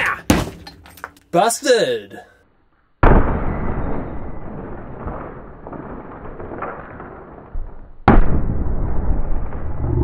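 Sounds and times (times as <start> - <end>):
heavy low rumble: 9.5 - 10.0.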